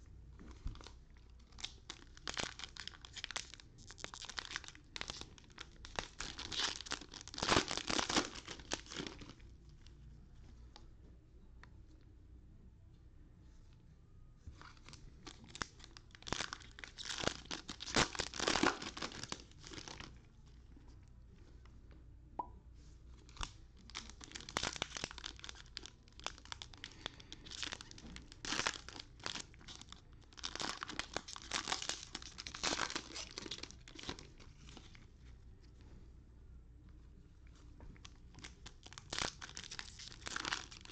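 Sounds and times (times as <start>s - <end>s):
foil packs tearing and crinkling: 15.3s - 20.1s, 23.9s - 34.2s, 38.8s - 40.9s.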